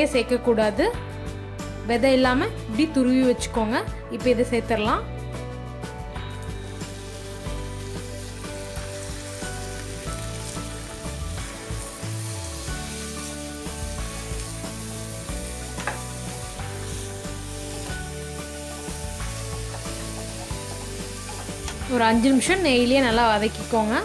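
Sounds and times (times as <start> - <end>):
soft background music: 0.0 - 24.0
food sizzling in a pan: 6.3 - 24.0.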